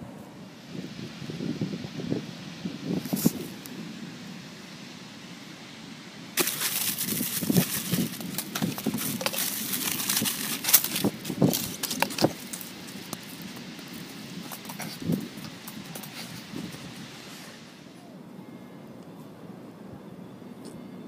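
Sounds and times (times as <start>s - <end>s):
aluminium foil crinkling: 6.4s - 16.9s.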